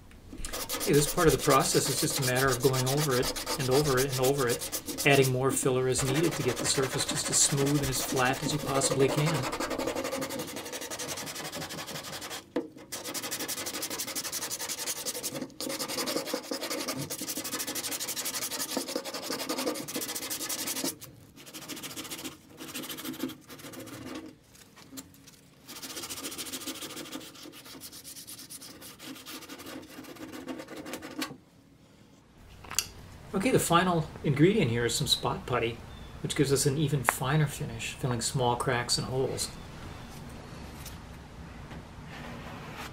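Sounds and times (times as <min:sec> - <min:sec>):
sanding block rasping: 0:00.4 - 0:24.2, 0:25.7 - 0:31.2.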